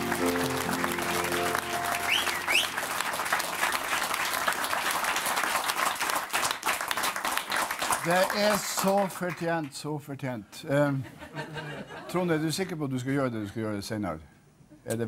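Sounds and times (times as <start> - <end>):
held music chord: 0.0 - 4.2
audience applauding: 0.0 - 9.7
short rising whistles: 1.9 - 2.8.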